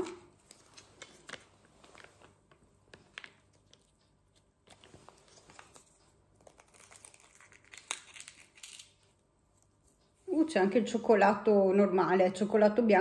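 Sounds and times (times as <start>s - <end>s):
plastic packaging crinkling: 0.0s - 9.1s.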